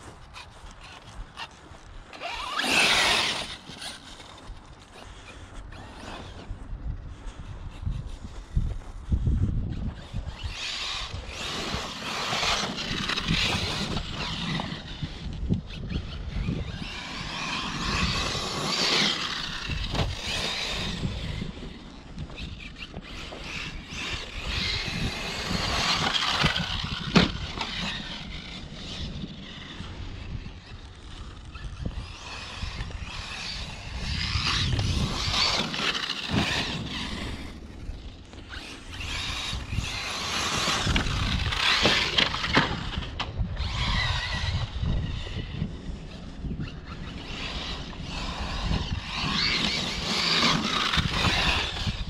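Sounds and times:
electric motor whining: 0:00.0 - 0:06.5, 0:09.8 - 0:52.0
tyre and scrape noise: 0:00.0 - 0:52.0.

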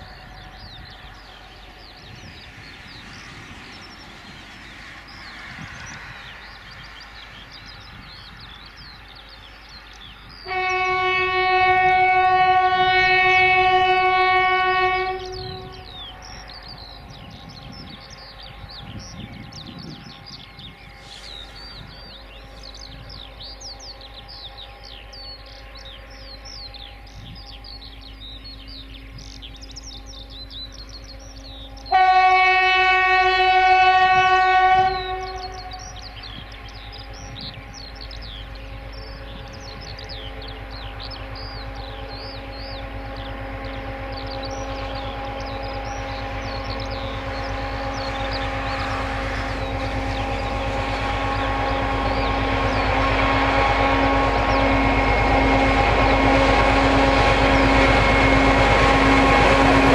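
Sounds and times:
birds chirping: 0:00.0 - 0:59.9
freight train approaching: 0:00.0 - 0:59.9
locomotive horn blast: 0:10.4 - 0:16.1, 0:31.8 - 0:36.0, 0:42.2 - 0:59.9.

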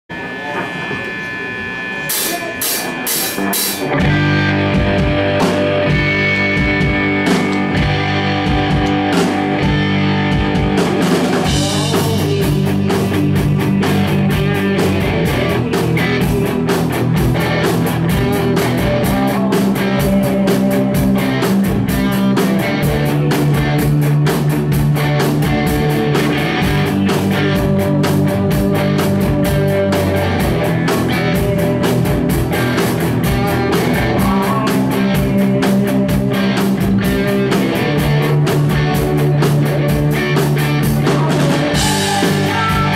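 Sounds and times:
live rock band playing: 0:01.2 - 0:42.9
fast cymbal beat: 0:02.1 - 0:07.7.

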